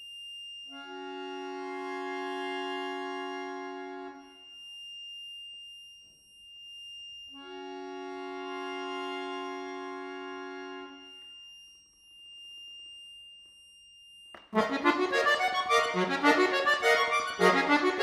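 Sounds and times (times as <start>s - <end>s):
accordion chords: 0.8s - 4.2s, 7.4s - 11.0s, 14.4s - 18.0s.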